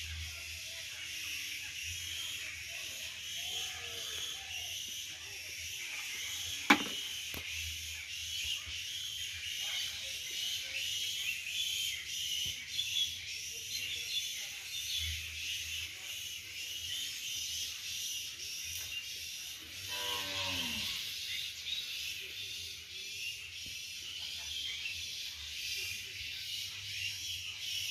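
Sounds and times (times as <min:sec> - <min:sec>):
cow mooing: 0:19.9 - 0:21.0.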